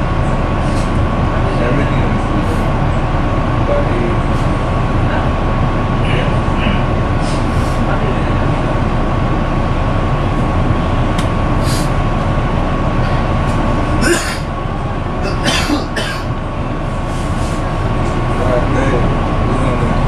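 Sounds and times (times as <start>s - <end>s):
bus engine idling: 0.0s - 20.0s
faint steady whine: 0.0s - 20.0s
short hisses: 11.6s - 12.0s.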